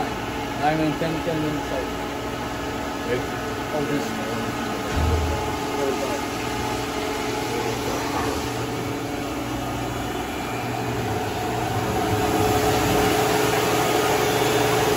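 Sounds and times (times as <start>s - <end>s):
gear cutting machine humming: 0.0s - 14.9s
machine whining tones: 3.3s - 14.9s.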